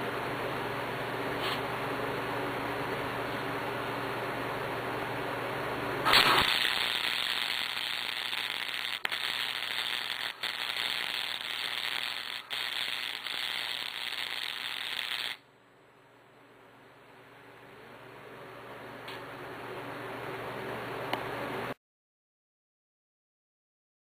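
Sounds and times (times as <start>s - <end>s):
welder arc crackling: 6.1s - 15.4s.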